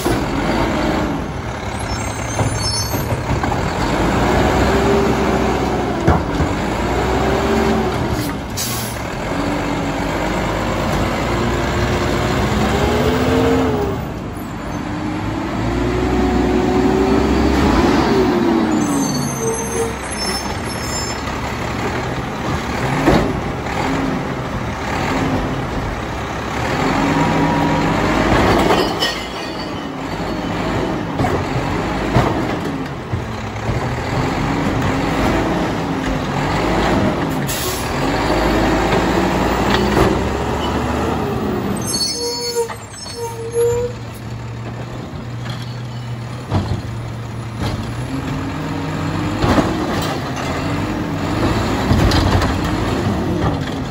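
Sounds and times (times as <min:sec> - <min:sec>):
garbage truck engine revving: 0:00.0 - 0:02.5, 0:03.1 - 0:42.4, 0:46.2 - 0:53.9
air brakes hissing: 0:08.6 - 0:09.0, 0:37.5 - 0:38.0.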